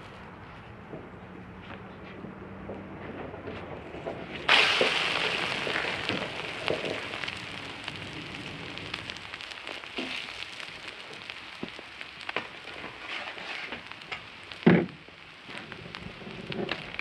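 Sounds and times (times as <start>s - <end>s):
omelet sizzling on griddle: 4.3s - 17.0s.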